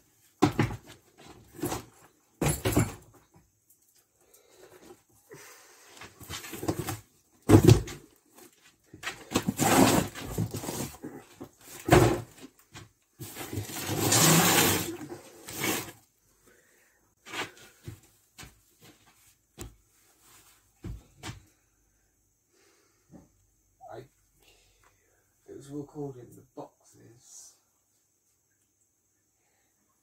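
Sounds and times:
boxes and bags scraping and rustling: 6.0 - 12.6, 13.2 - 16.0
box thumping: 6.6 - 8.0.

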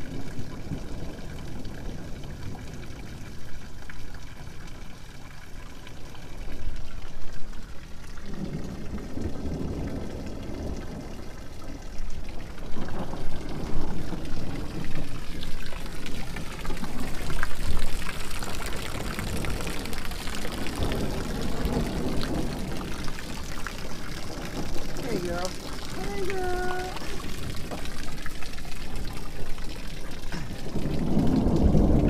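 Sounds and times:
heavy rain: 0.0 - 32.0
runoff splashing onto ground: 12.4 - 32.0.

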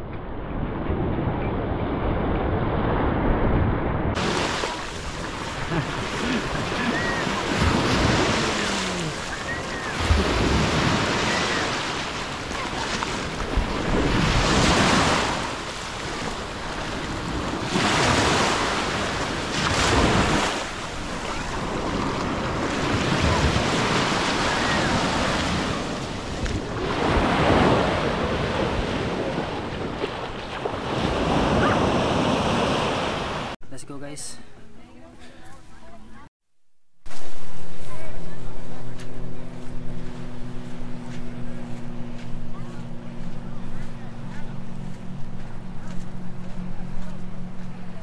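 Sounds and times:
ocean surf washing ashore: 1.8 - 33.6, 37.1 - 42.2.

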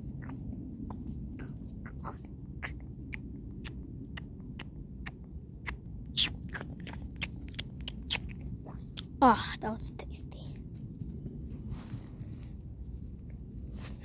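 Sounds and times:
low rumble: 0.0 - 14.0
mouth chomping clicks and smacks: 0.1 - 9.2.

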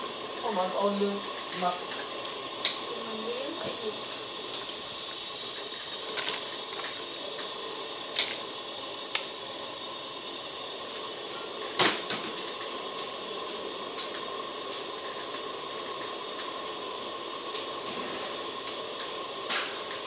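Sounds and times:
soup bubbling: 4.1 - 9.2.

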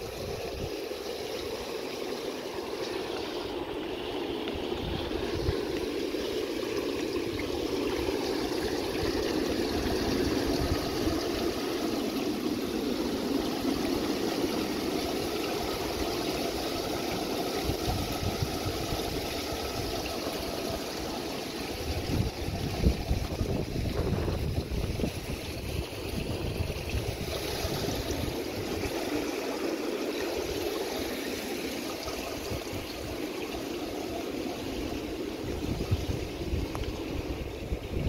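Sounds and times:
rushing water: 0.0 - 38.0
wind buffeting microphone: 4.5 - 11.7, 17.6 - 20.1, 21.7 - 29.2, 34.8 - 38.0.

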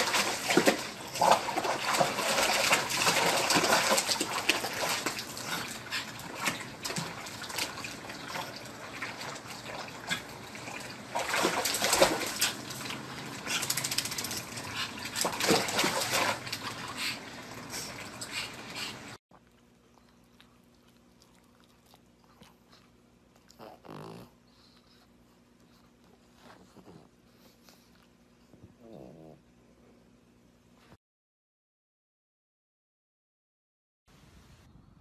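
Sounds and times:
puppy splashing in water: 0.0 - 19.2.

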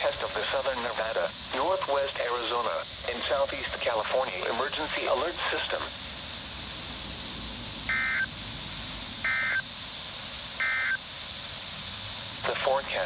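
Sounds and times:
radio hiss: 0.0 - 7.0, 7.8 - 13.0
digital data tone bursts: 7.9 - 8.3, 9.2 - 9.7, 10.6 - 11.0.

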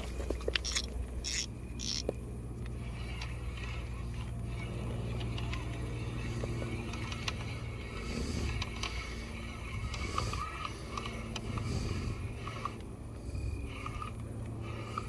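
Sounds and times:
steady low hum: 0.0 - 15.0
fishing reel clicks: 0.5 - 7.7.

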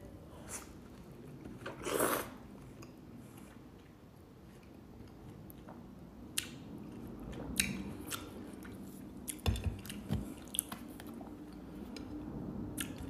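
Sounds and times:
person chewing watermelon: 6.4 - 11.7.

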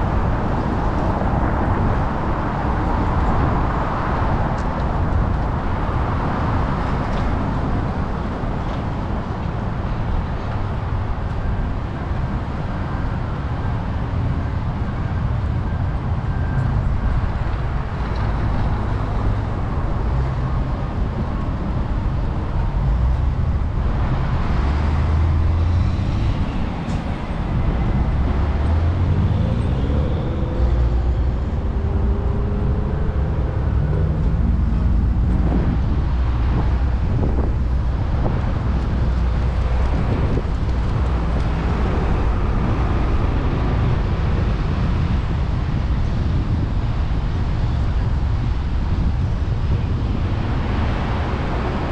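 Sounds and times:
road traffic rumble: 0.0 - 51.9
vehicle engine accelerating: 22.1 - 45.6.

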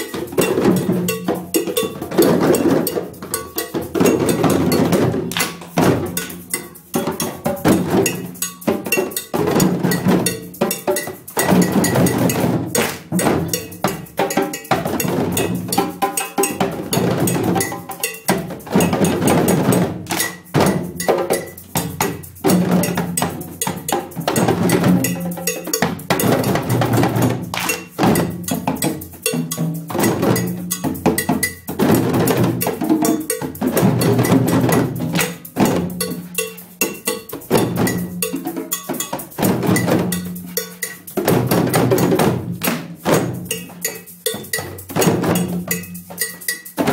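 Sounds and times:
djembes drumming: 0.0 - 46.9.

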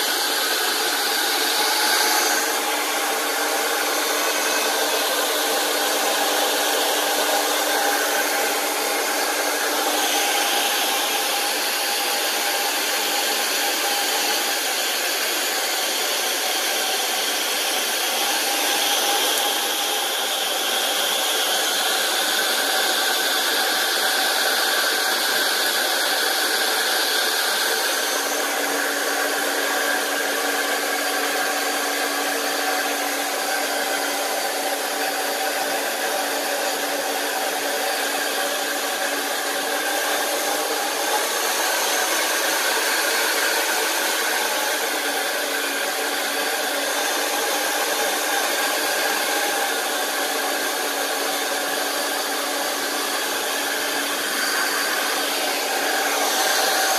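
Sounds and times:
hair dryer running: 0.0 - 56.9.

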